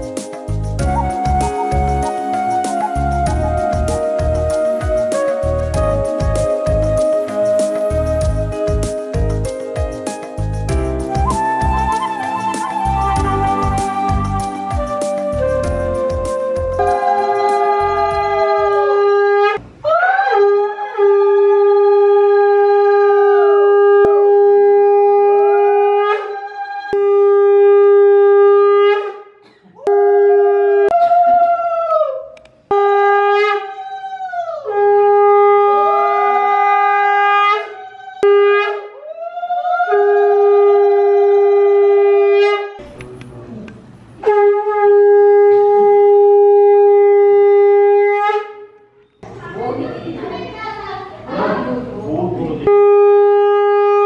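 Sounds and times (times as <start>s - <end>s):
conch shell blasts: 11.3s - 19.6s, 29.9s - 31.1s, 32.7s - 33.7s, 44.2s - 48.8s, 52.7s - 54.0s.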